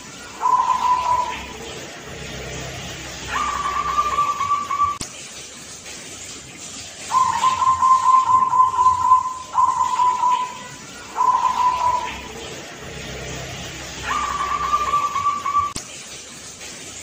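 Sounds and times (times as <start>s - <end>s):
dove cooing: 0.3s - 1.9s, 3.2s - 5.0s, 7.1s - 12.4s, 14.0s - 15.8s.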